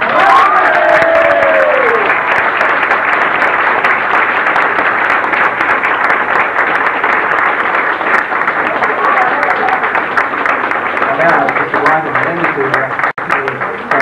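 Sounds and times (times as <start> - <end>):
long cheer: 0.0 - 2.8
audience applauding: 0.0 - 14.0.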